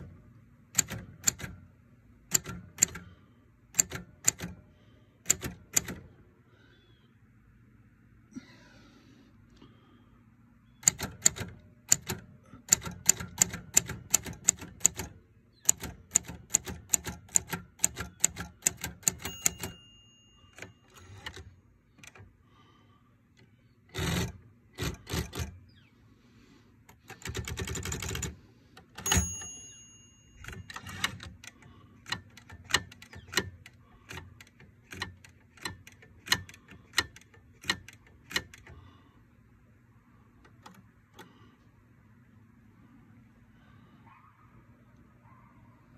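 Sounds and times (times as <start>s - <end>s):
typewriter keystrokes: 0.7s - 1.6s, 2.3s - 4.6s, 5.2s - 6.1s, 10.8s - 22.2s, 23.9s - 25.6s, 26.9s - 38.8s
typewriter margin bell ding: 19.0s - 21.4s, 29.0s - 31.3s
typewriter carriage rattling back: 23.9s - 25.6s, 27.1s - 28.3s, 30.2s - 38.6s.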